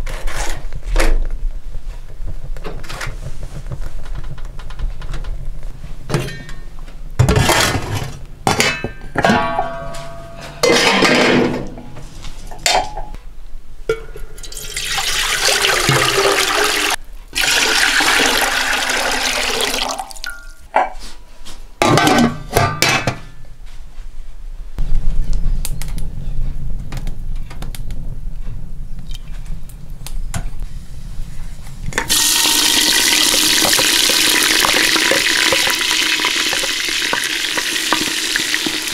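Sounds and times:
kitchen clattering and knocks: 6.1 - 12.0, 21.8 - 23.4, 32.0 - 38.9
water poured into steel pot: 14.4 - 20.5, 32.1 - 38.9
onions sizzling in hot oil: 32.1 - 38.9.

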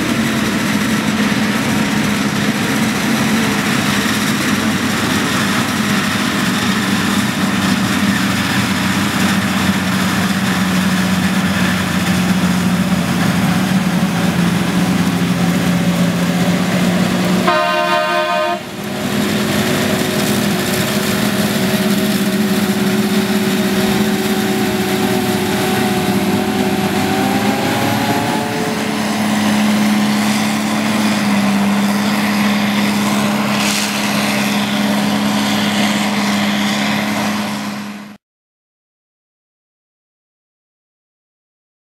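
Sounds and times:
chopping machinery: 0.0 - 38.1
diesel engines running: 0.0 - 38.2
short horn-like tone: 17.4 - 18.8.

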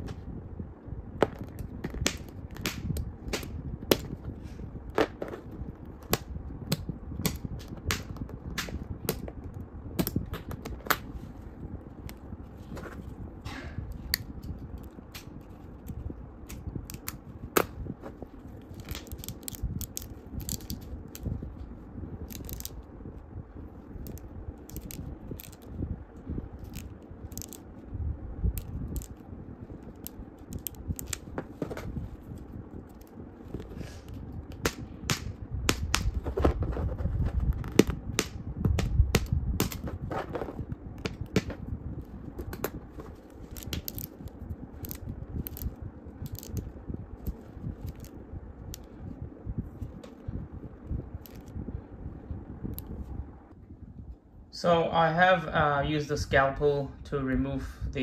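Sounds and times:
plastic parts clicking and snapping: 18.6 - 21.3, 22.2 - 22.8, 24.0 - 25.7, 26.6 - 27.6, 28.6 - 29.2, 29.9 - 31.9, 43.5 - 48.1.

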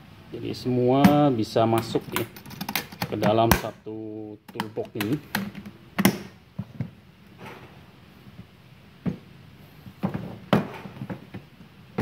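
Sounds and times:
toolbox knocks and clunks: 9.0 - 9.3, 10.0 - 12.0.

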